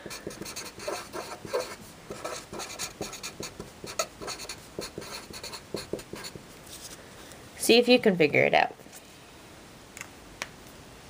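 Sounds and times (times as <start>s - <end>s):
marker scratching on paper: 0.0s - 6.4s.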